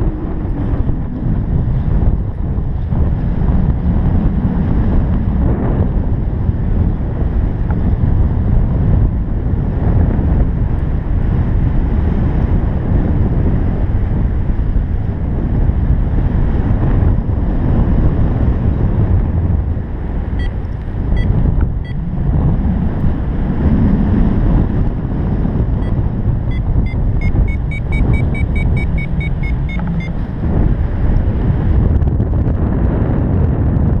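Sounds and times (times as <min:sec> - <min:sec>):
wind rushing over microphone: 0:00.0 - 0:34.0
variometer beeping: 0:20.4 - 0:22.1, 0:25.8 - 0:30.4.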